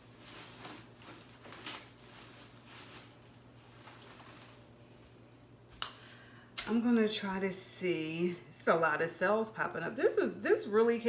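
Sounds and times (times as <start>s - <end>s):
soft rustles: 0.0s - 5.2s.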